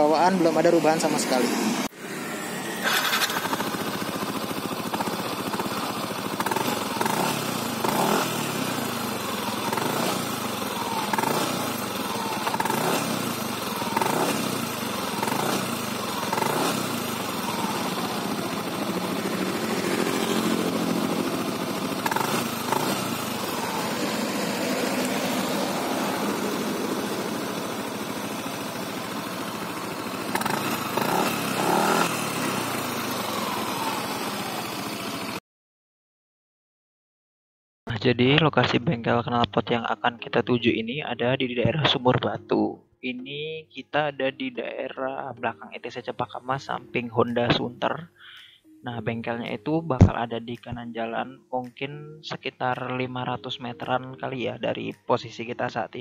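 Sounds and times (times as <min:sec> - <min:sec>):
scooter engine revving: 0:00.0 - 0:35.4.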